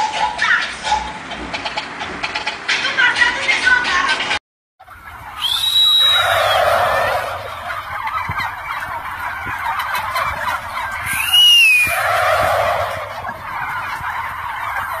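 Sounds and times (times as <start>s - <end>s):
turkeys gobbling: 0.0s - 3.1s, 4.8s - 15.0s
high whistle-like call: 5.4s - 7.2s, 11.0s - 12.7s.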